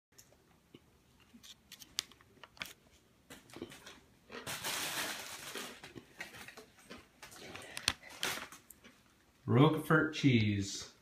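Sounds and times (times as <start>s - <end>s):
plastic wrapping crinkling: 1.3s - 9.0s.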